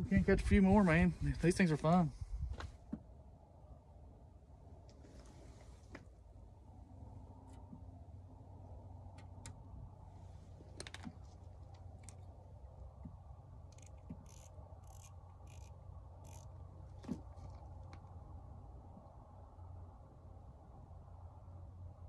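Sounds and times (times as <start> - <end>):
low steady rumble: 0.0 - 22.0
fishing reel clicking: 13.7 - 16.5.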